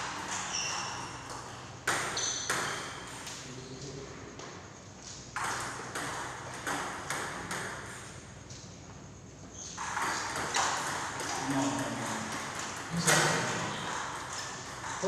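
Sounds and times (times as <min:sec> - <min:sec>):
table tennis ball pinging: 0:09.6 - 0:11.4.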